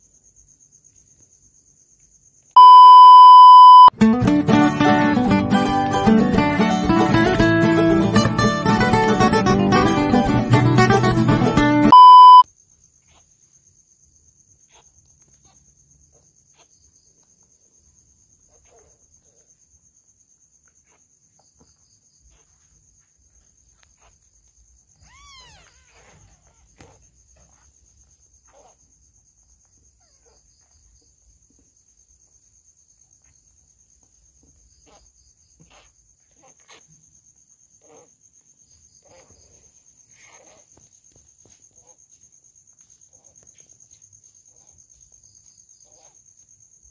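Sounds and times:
faint high-pitched trill: 2.6 - 3.9, 11.9 - 12.4
short loud beep: 2.6 - 3.9, 11.9 - 12.4
guitar music: 4.0 - 11.9
kitten mewing: 25.0 - 26.2.

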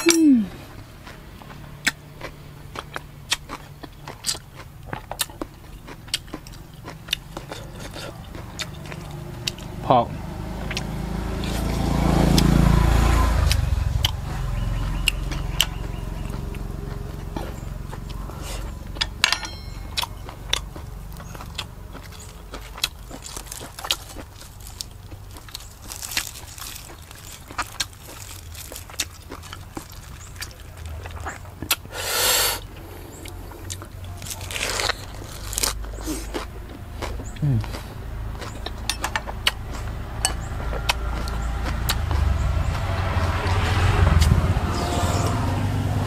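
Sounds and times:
chewing and lip smacks: 0.6 - 9.8, 10.6 - 12.6, 13.4 - 19.2, 19.8 - 44.4
low rumble: 39.3 - 46.0.

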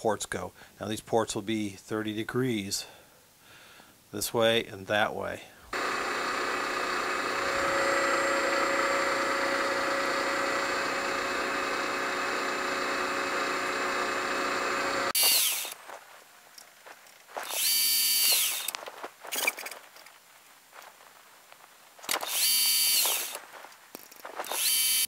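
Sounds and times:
milling machine spindle whine: 5.8 - 15.8, 17.4 - 18.7, 24.5 - 25.0.

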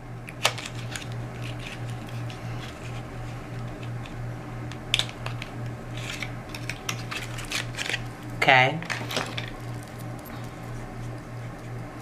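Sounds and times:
steady low hum: 0.0 - 12.0
package clicks and rustles: 0.3 - 2.9, 3.6 - 8.1.

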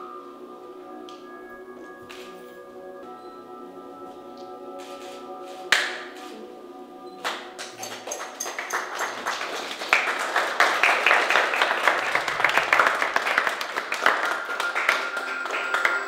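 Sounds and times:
audience applauding: 7.2 - 16.0.

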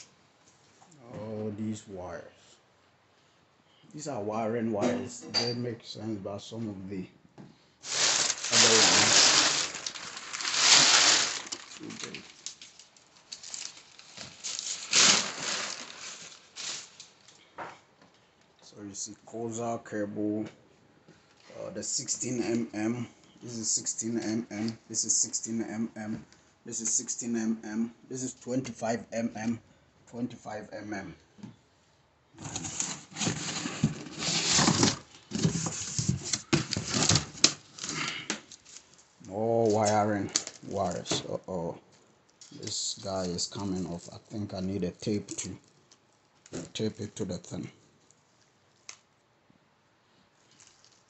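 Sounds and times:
packing paper crumpling: 7.8 - 17.4, 32.4 - 39.0, 50.4 - 51.0
rustling: 7.8 - 17.6, 32.4 - 41.2, 50.4 - 51.0.

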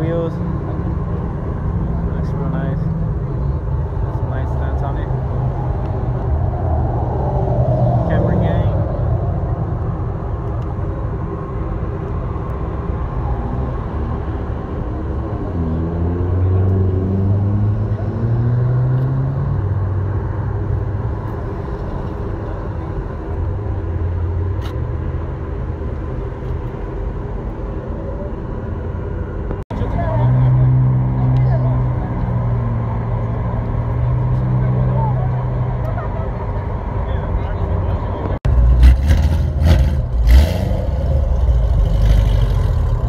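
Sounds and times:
car engines rumbling: 0.0 - 43.0.

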